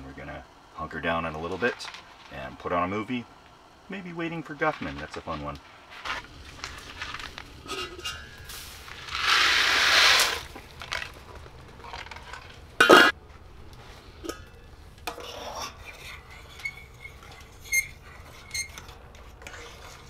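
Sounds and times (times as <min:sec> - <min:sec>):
utensil clinking against a pot: 0:07.6 - 0:08.5, 0:14.2 - 0:20.0
dry pasta pouring into a pot: 0:08.6 - 0:11.1
lid clanking onto a pot: 0:12.8 - 0:13.1.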